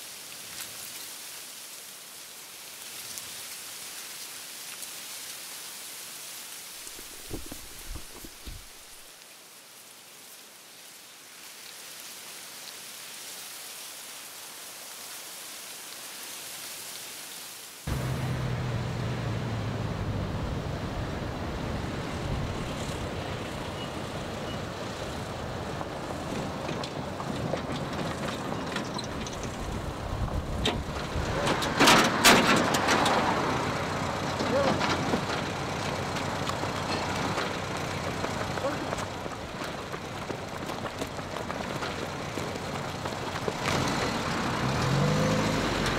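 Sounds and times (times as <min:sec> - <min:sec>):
steady hiss: 0:00.0 - 0:18.4.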